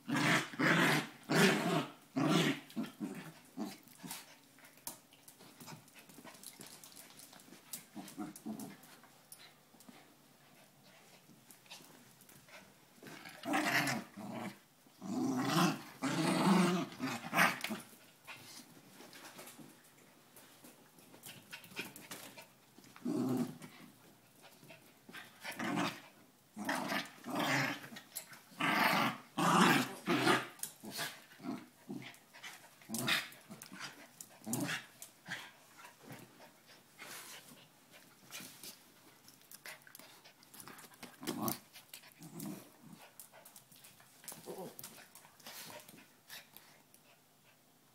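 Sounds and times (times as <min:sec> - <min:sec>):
dogs growling while play-fighting: 0:00.0 - 0:04.4, 0:05.4 - 0:09.5, 0:12.5 - 0:18.6, 0:22.9 - 0:24.0, 0:24.6 - 0:36.4, 0:39.6 - 0:43.4, 0:44.2 - 0:46.7.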